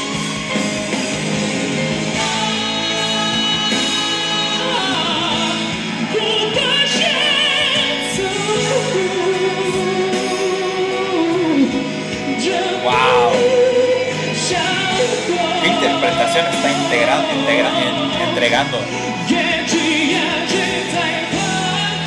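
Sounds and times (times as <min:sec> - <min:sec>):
musical accompaniment: 0:00.0 - 0:22.0
man singing high notes: 0:12.8 - 0:13.7.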